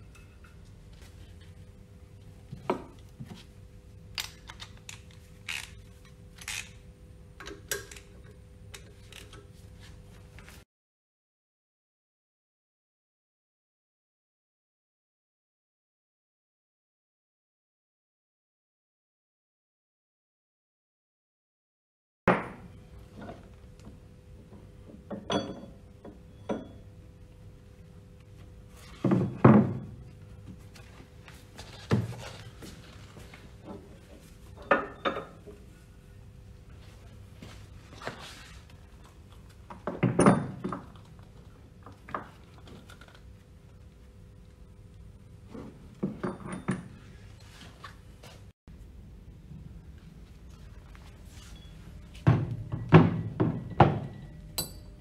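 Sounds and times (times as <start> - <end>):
steady low hum: 0.0 - 10.6
metal knocks and clinks: 25.1 - 25.8, 52.5 - 55.0.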